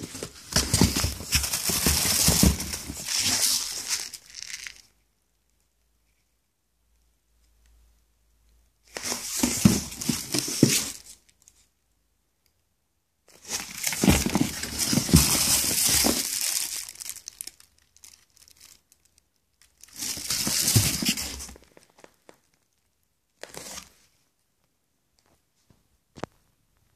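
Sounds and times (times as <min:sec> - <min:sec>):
plastic wrapping crinkling: 0:00.0 - 0:04.9, 0:13.4 - 0:22.8.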